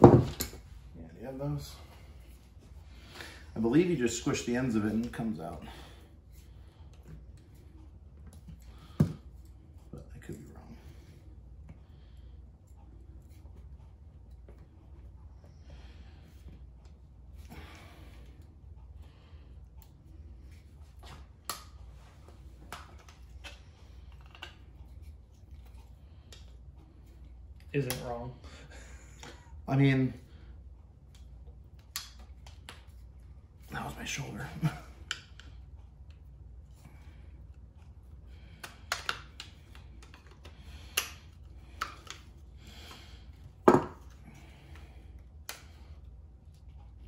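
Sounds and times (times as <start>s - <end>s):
steady low hum: 0.0s - 47.0s
clicks and taps on connectors: 38.6s - 42.3s.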